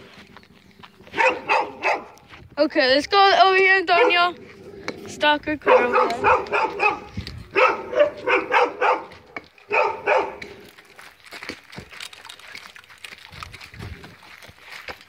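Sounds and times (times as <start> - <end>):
dog barking: 1.1 - 2.2, 3.9 - 4.3, 5.6 - 10.5.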